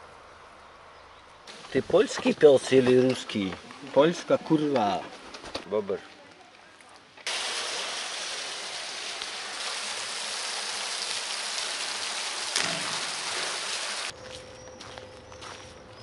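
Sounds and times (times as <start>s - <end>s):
water pouring over a spillway: 7.3s - 14.1s.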